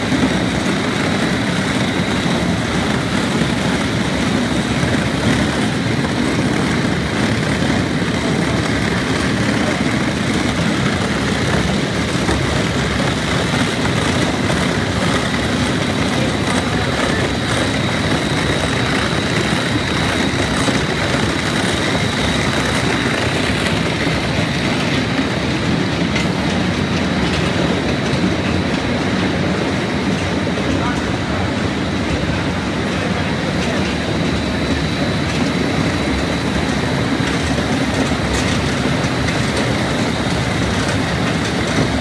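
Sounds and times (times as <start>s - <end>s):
floor grinder grinding concrete: 0.0s - 28.8s.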